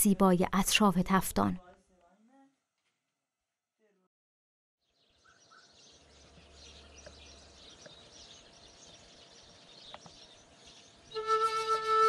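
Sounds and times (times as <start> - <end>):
small birds chirping: 4.8 - 11.4.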